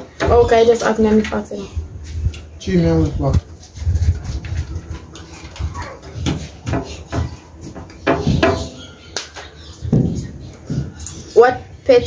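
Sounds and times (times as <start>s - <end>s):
hand clap: 9.1s - 9.6s.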